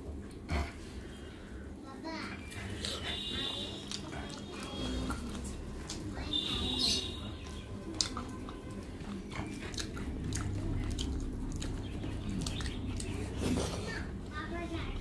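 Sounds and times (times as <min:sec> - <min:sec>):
chewing and mouth sounds: 0:02.4 - 0:14.3
wet squishing of food: 0:02.4 - 0:14.3.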